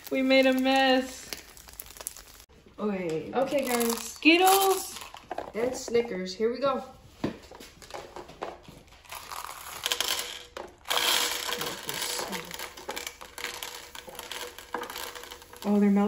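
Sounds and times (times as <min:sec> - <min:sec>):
candy rattling onto metal plate: 0:00.0 - 0:02.5, 0:03.4 - 0:06.1, 0:09.0 - 0:16.0
crinkling handling noise: 0:00.0 - 0:06.2, 0:07.0 - 0:16.0.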